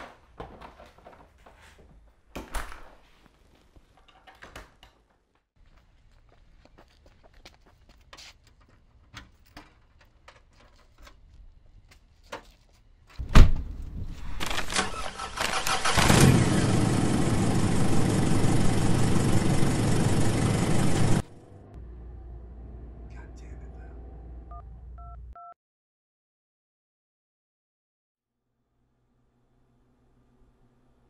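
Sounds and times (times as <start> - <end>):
faint footsteps: 5.1 - 9.5
car engine starting and running: 14.4 - 25.2.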